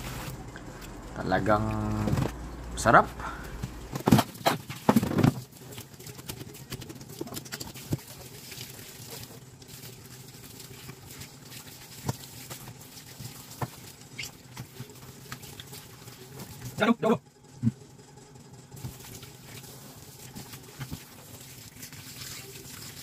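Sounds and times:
loud knocks and clatter: 0:04.0 - 0:05.5.

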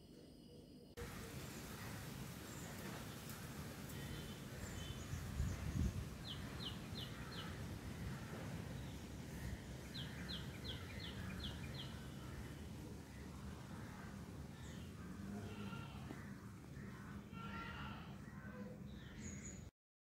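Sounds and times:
bird chirping: 0:01.0 - 0:13.6.

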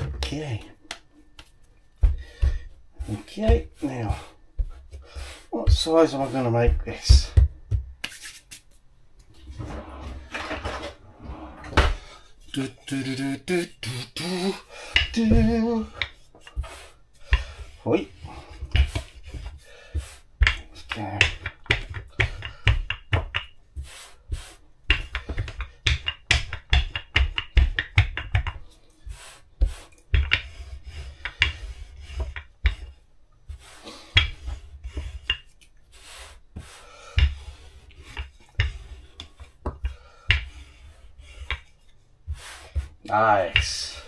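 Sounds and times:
rolling pin thumping: 0:00.0 - 0:08.1, 0:14.9 - 0:16.7, 0:17.3 - 0:23.6, 0:24.8 - 0:28.6, 0:29.6 - 0:35.5, 0:36.5 - 0:41.7, 0:42.3 - 0:44.0.

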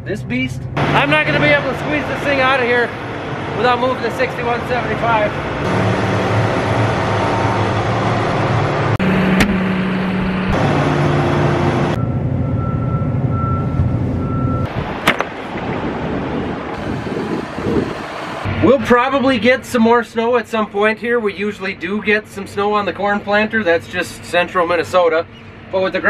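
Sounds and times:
tractor diesel engine running: 0:00.6 - 0:14.7
pulsing beep: 0:12.0 - 0:14.7.

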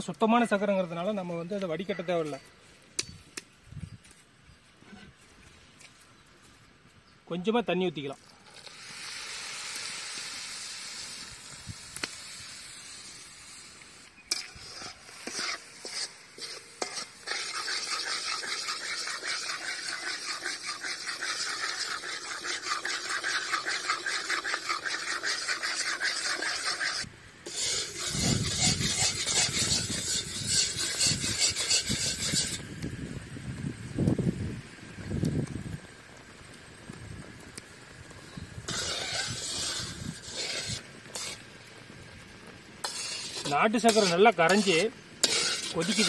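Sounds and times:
syrup sizzling: 0:08.2 - 0:32.6, 0:34.9 - 0:46.0
metal spatula scraping pan: 0:14.3 - 0:32.6, 0:38.7 - 0:41.4, 0:42.8 - 0:46.0.

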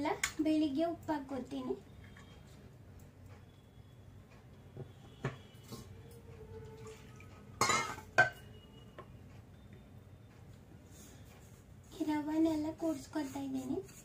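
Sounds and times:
dishes clinking: 0:07.6 - 0:08.4
spoon scraping a bowl: 0:12.9 - 0:14.0.

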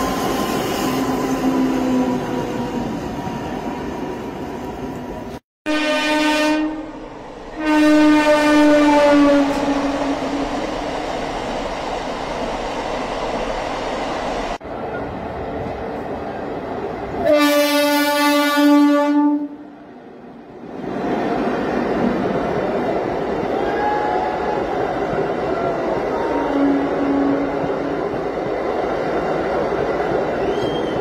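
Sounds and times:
train rumbling and rattling: 0:00.0 - 0:05.4, 0:06.9 - 0:18.2, 0:19.8 - 0:31.0
train horn blasts: 0:05.6 - 0:10.6, 0:17.2 - 0:19.7, 0:26.2 - 0:27.6.

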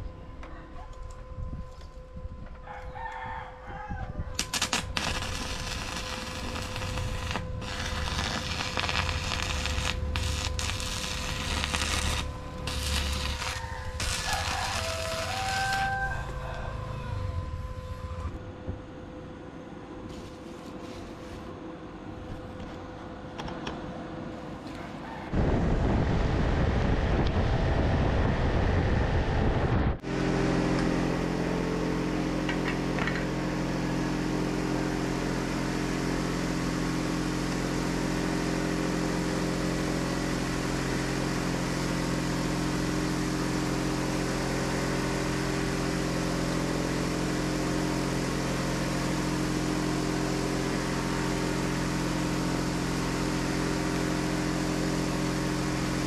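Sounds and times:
steady machine hum: 0:00.0 - 0:56.0
forge fire roaring: 0:04.4 - 0:18.5, 0:25.3 - 0:56.0.

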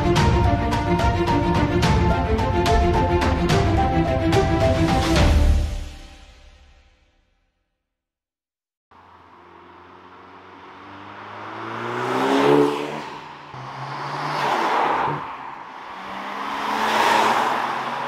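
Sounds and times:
cars driving past: 0:09.0 - 0:18.0.

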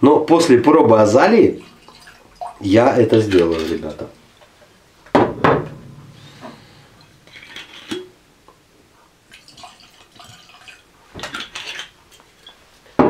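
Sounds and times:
wine pouring into a glass: 0:01.5 - 0:04.1, 0:09.3 - 0:12.6.

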